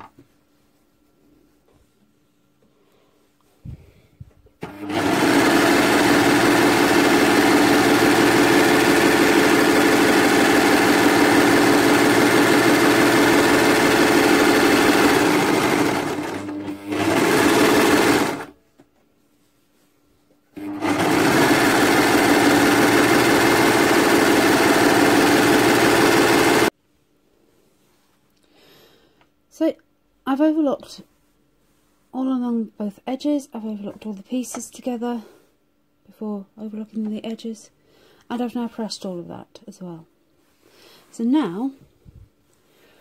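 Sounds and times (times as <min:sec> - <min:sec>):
overlocker sewing machine humming: 0:04.6 - 0:18.6, 0:20.6 - 0:26.7.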